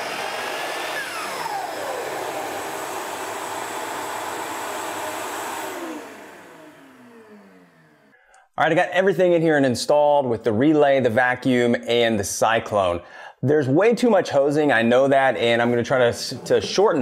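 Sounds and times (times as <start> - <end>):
saw motor whine: 0.0 - 8.2
shop vacuum running: 0.0 - 8.2, 14.8 - 17.0.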